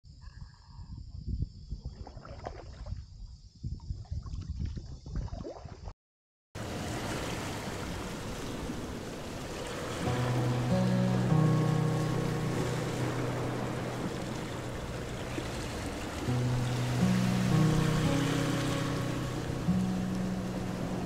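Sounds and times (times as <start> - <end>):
paddle strokes splashing: 6.6 - 21.0
steady rushing noise: 6.6 - 21.0
music with low notes: 9.8 - 21.0.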